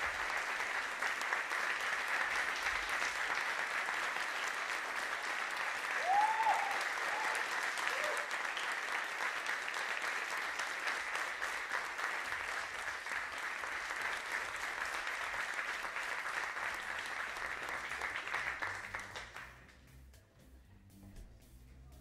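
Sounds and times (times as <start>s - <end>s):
audience applauding: 0.0s - 19.6s
low music: 17.3s - 22.0s.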